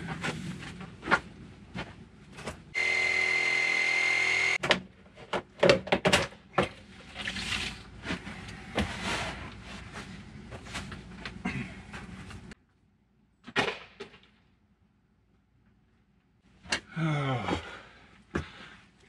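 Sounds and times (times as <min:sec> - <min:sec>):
power saw whining: 0:02.8 - 0:04.6.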